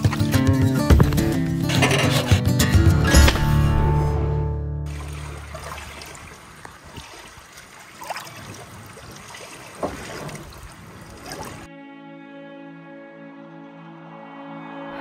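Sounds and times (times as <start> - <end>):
waves lapping against rock: 4.9 - 11.7.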